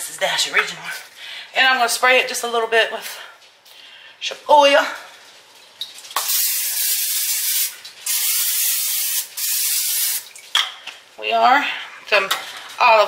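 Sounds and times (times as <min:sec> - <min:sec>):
cooking spray hissing: 0:06.2 - 0:10.3.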